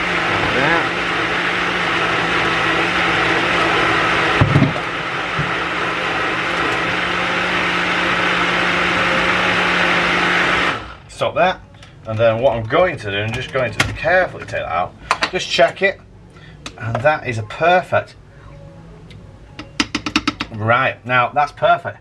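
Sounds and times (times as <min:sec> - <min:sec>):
electric blender running: 0:00.0 - 0:11.0.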